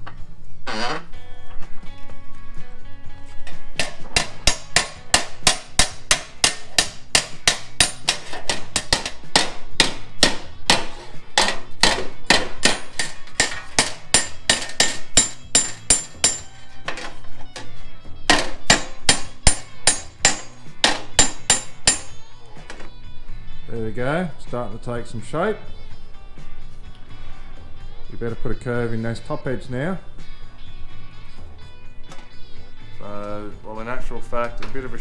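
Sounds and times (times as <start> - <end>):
hammer striking sheet steel: 3.8 - 16.6, 18.3 - 22.2.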